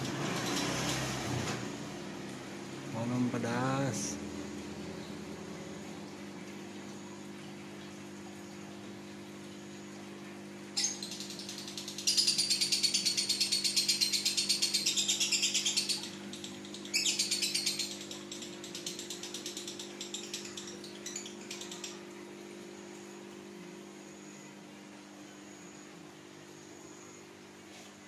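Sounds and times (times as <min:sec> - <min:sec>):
lovebird chattering trill: 0:10.8 - 0:22.0.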